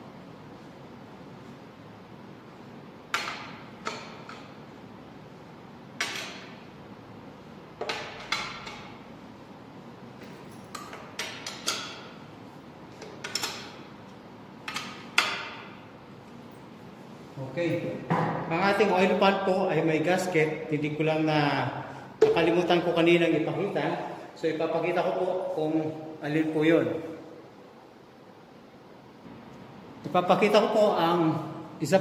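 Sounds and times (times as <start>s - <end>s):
wrench and bolts clinking on metal: 10.2s - 12.2s.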